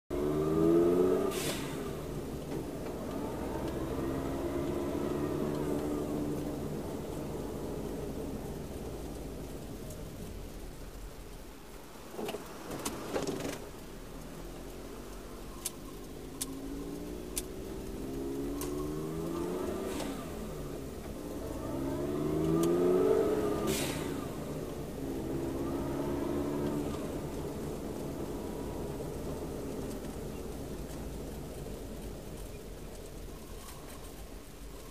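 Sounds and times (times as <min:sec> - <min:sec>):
car engine accelerating: 0:00.0 - 0:34.9
road noise: 0:00.0 - 0:34.9
brief hiss: 0:01.2 - 0:02.2, 0:19.8 - 0:20.6, 0:23.6 - 0:24.6.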